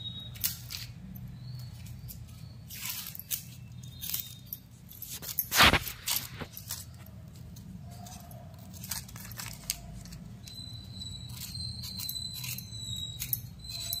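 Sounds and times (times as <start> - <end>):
onion skin crackling and tearing: 5.1 - 14.0.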